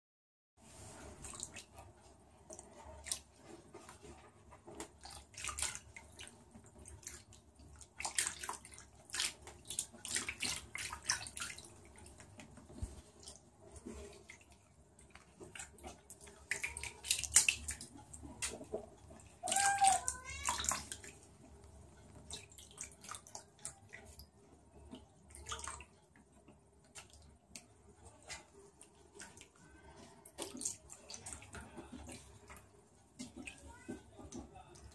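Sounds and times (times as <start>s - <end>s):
water splashing and sloshing: 0.6s - 34.9s
cat high-pitched call: 19.4s - 20.7s.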